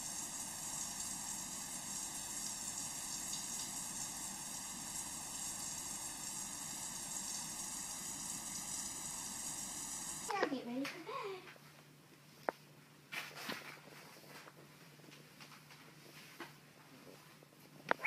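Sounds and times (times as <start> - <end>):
shower water running: 0.0 - 10.4.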